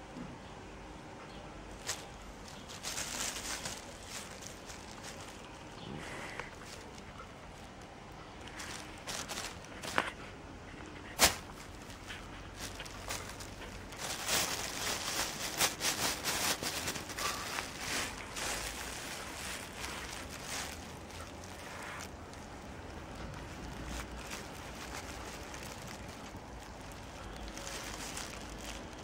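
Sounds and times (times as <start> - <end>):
plastic bag rustling and crinkling: 1.7 - 29.0.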